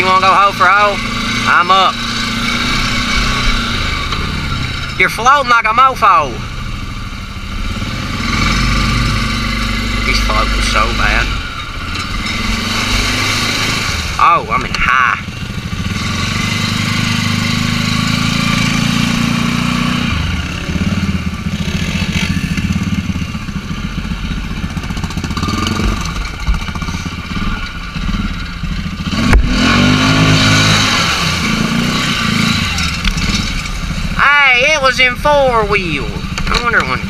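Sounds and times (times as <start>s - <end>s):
atv engine revving: 0.0s - 37.0s
water splashing: 9.2s - 14.9s, 29.6s - 34.0s.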